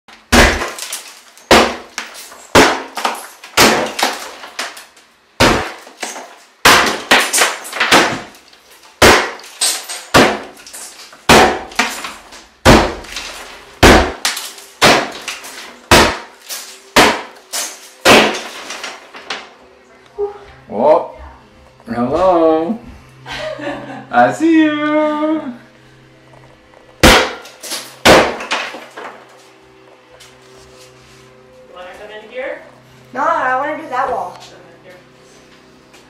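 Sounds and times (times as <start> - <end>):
hard strikes breaking wall: 0.3 - 19.5, 27.0 - 29.2.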